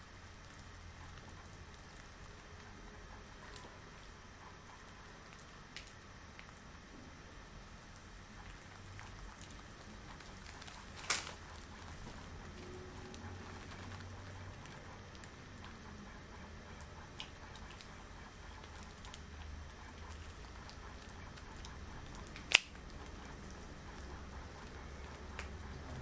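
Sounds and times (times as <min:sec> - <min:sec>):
latex gloves rubbing and crackling: 0:07.8 - 0:26.0
latex glove snapping: 0:10.4 - 0:11.4, 0:21.0 - 0:23.0.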